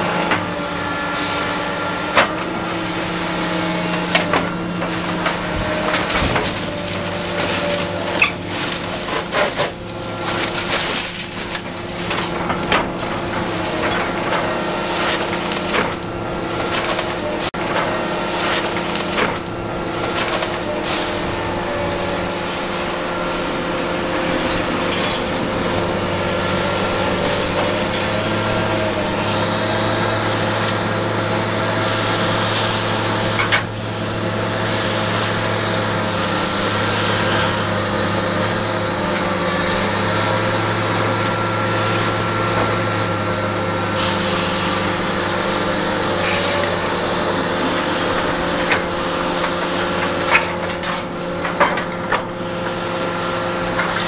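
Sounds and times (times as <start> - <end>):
excavator engine and hydraulics: 0.0 - 54.0
knocks and crunches of material: 3.9 - 22.5.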